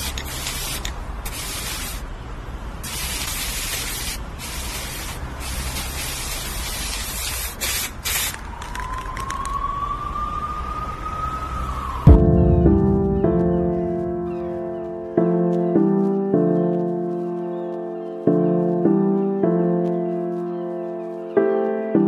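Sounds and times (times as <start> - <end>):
spray-paint can hissing: 0.0 - 2.1, 2.8 - 8.4
faint rising tone: 9.7 - 15.1.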